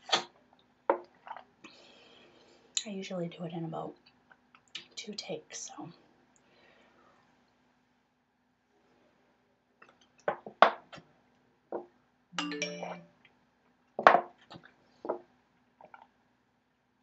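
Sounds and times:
brief multi-pitch ringing tone: 12.4 - 13.2.

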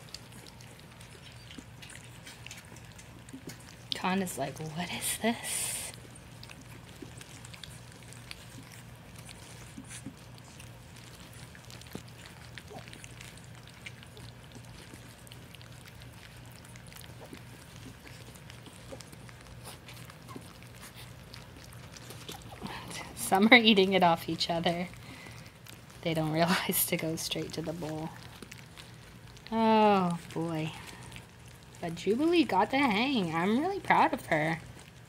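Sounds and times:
puppies lapping food: 0.0 - 35.0.

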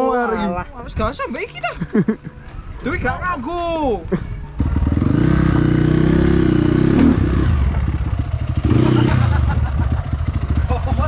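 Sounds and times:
motorcycle engine running: 4.6 - 11.0.

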